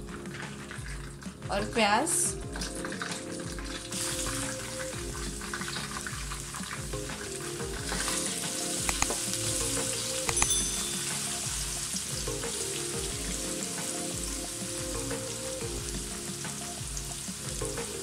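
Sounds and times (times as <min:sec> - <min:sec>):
onions sizzling in hot oil: 0:02.8 - 0:18.0
sharp clicks: 0:08.8 - 0:09.2, 0:10.3 - 0:10.6.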